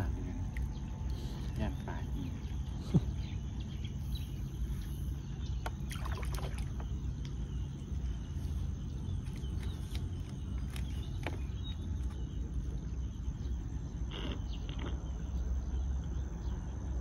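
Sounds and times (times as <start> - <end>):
water sloshing and splashing: 0.0 - 1.7, 5.5 - 12.3
steady low rumble: 0.0 - 17.0.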